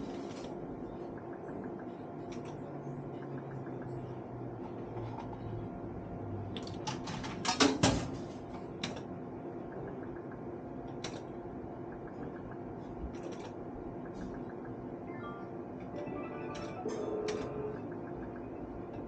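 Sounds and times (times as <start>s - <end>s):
steady background hum: 0.0s - 19.0s
sharp mechanical clicks and knocks: 9.7s - 14.8s.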